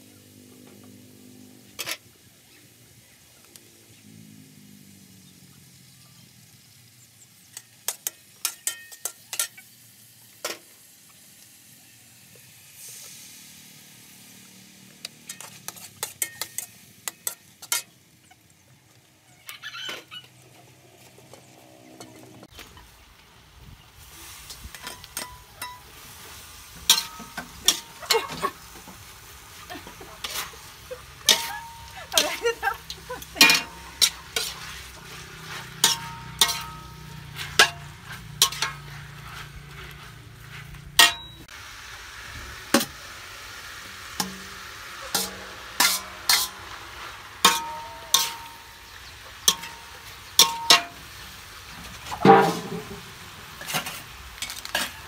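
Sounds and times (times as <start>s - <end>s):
food sizzling: 0.0s - 55.0s
metal spatula scraping a wok: 1.6s - 2.1s, 7.5s - 10.6s, 12.7s - 18.1s, 24.0s - 41.5s, 44.1s - 55.0s.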